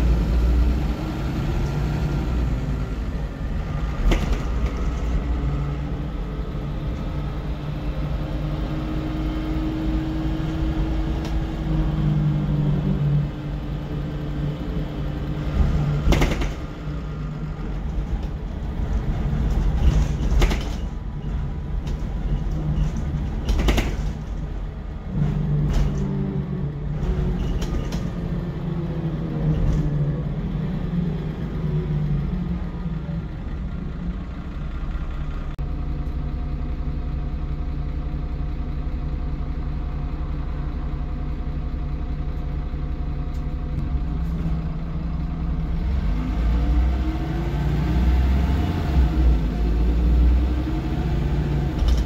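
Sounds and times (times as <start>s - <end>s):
bus diesel engine running: 0.0s - 52.0s.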